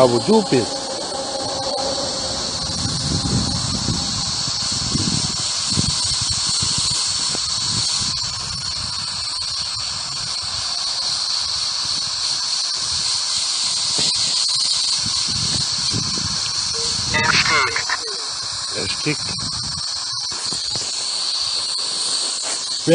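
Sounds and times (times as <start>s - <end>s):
high-pitched whine: 0.0s - 6.2s, 16.1s - 18.8s
radio static hiss: 16.7s - 19.4s.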